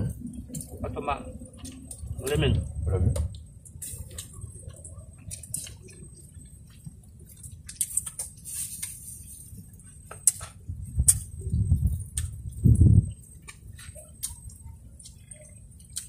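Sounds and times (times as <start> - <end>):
steady low rumble: 0.0 - 15.0
eating clicks and smacks: 3.2 - 9.0, 10.1 - 12.5, 13.1 - 16.0.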